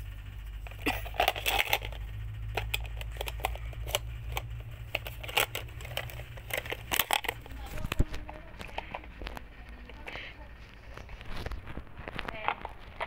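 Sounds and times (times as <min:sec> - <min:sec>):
steady low hum: 0:00.0 - 0:13.0
objects handled and rustled: 0:02.6 - 0:13.0.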